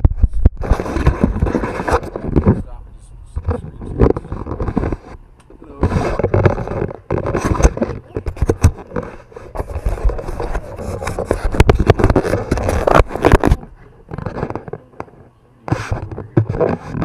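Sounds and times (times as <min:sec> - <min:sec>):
fingers rubbing on microphone: 0:00.0 - 0:17.0.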